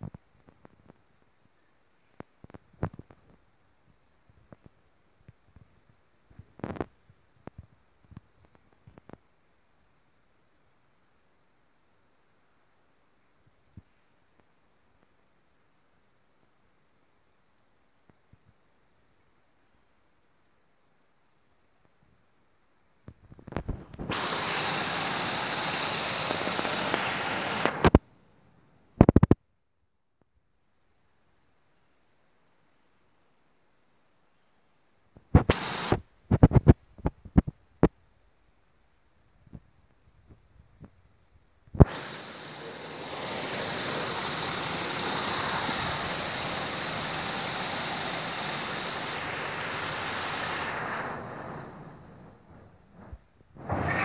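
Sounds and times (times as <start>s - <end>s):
sand rushing hiss: 24.0s - 27.9s, 35.4s - 36.0s, 41.8s - 52.2s.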